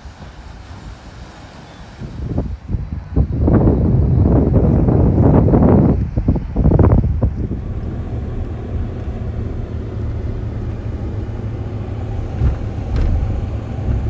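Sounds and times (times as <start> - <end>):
car cabin rumble: 4.6 - 14.0
knock: 12.4 - 13.3.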